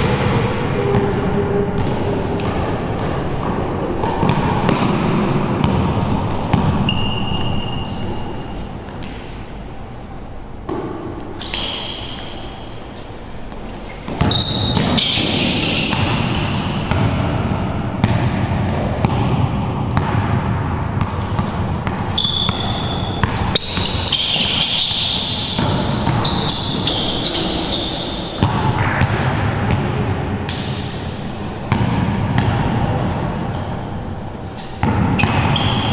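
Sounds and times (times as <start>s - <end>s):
basketball dribbling: 1.8s - 8.2s, 14.1s - 30.9s, 31.6s - 33.1s
sneakers squeaking on floor: 6.5s - 9.6s, 10.7s - 17.1s, 21.0s - 28.7s, 31.8s - 35.9s.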